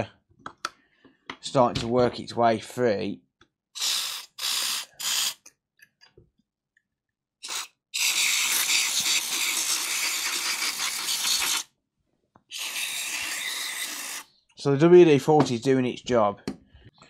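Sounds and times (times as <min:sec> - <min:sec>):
aerosol spray hissing: 0:03.8 - 0:05.4, 0:07.4 - 0:11.7.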